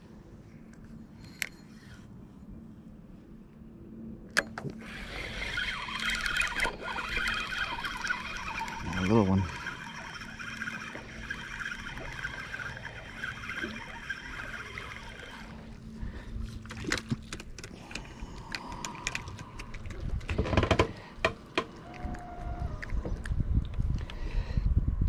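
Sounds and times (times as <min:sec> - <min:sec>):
spinning reel whirring: 0:04.8 - 0:15.8
water splashing: 0:05.2 - 0:15.8.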